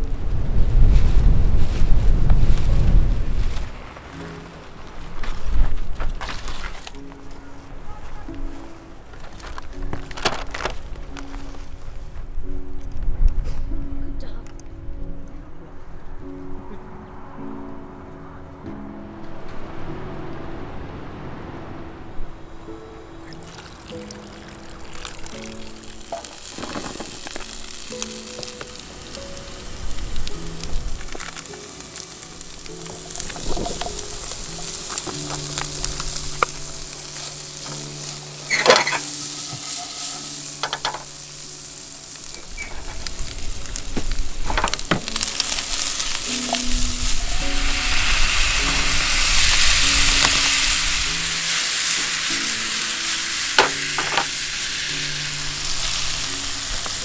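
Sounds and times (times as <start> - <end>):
food sizzling in a frying pan: 23.2 - 57.0.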